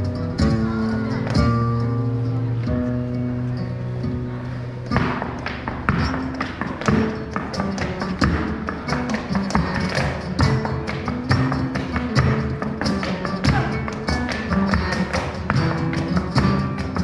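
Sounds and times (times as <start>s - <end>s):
guitar playing: 0.0s - 17.0s
shoes tapping on wooden board: 4.9s - 17.0s.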